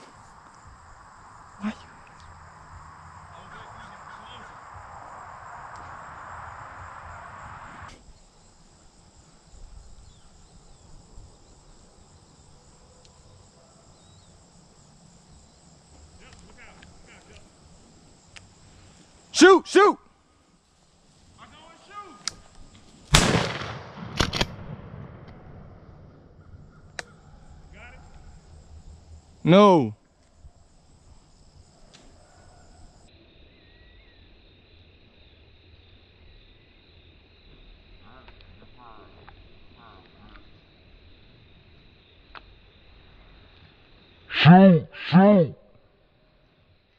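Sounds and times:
low uneven rumble: 0:00.0 - 0:07.9
high insect trill: 0:00.0 - 0:23.7, 0:25.4 - 0:46.9
crickets chirring: 0:00.0 - 0:46.9.

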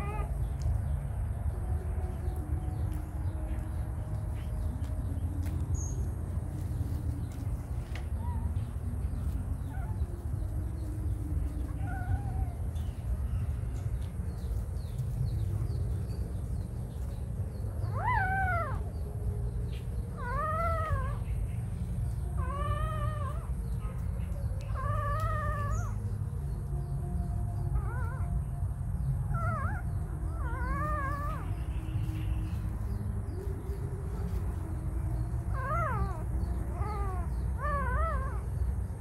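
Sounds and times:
young animal whimpering cries: 0:00.0 - 0:01.0, 0:05.4 - 0:39.0
steady low rumble: 0:00.0 - 0:39.0.

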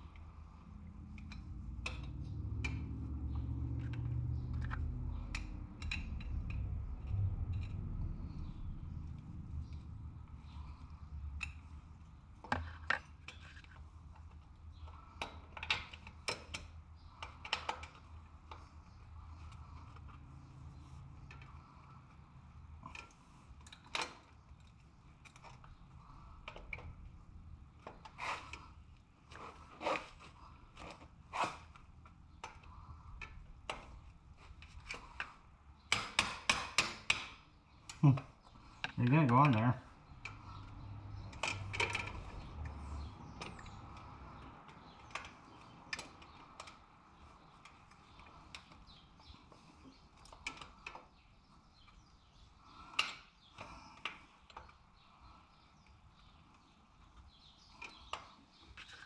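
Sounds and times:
low steady hum: 0:00.0 - 0:15.2.

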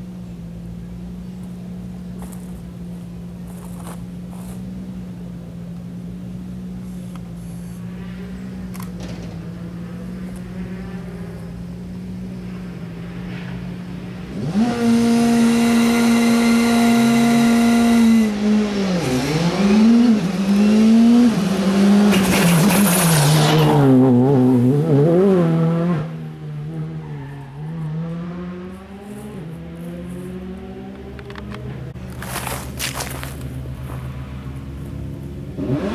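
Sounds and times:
quiet engine idling: 0:00.0 - 0:14.3, 0:28.7 - 0:35.6
rally car engine revving: 0:06.8 - 0:35.9
tyre squeal: 0:26.9 - 0:27.8.

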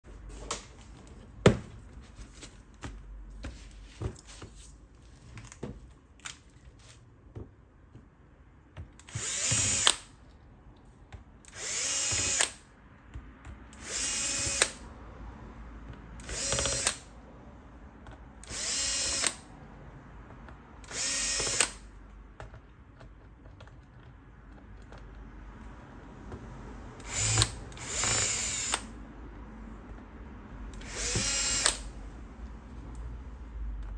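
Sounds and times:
electric screwdriver whirring: 0:09.0 - 0:10.1, 0:11.5 - 0:12.6, 0:13.8 - 0:14.8, 0:16.2 - 0:17.1, 0:18.4 - 0:19.4, 0:20.8 - 0:21.9, 0:27.0 - 0:29.0, 0:30.8 - 0:31.9
handling knocks and clicks: 0:22.0 - 0:25.3.

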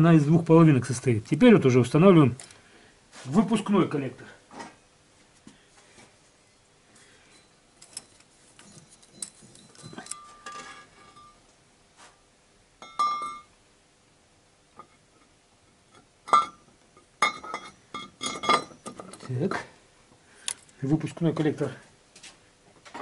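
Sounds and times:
ringing metal clanks: 0:07.3 - 0:11.4, 0:12.8 - 0:13.5
metal clinking and knocking: 0:07.4 - 0:11.4, 0:12.8 - 0:13.5, 0:16.3 - 0:19.4.

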